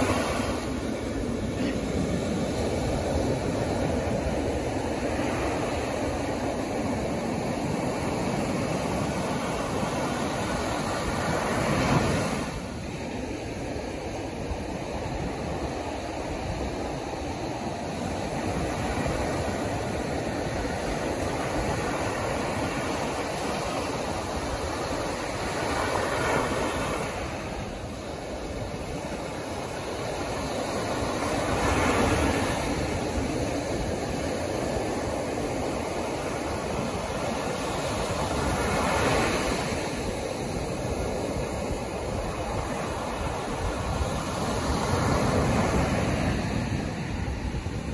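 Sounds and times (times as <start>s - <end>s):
wave crashing: 0.0s - 13.3s
ocean surf rushing: 0.0s - 47.9s.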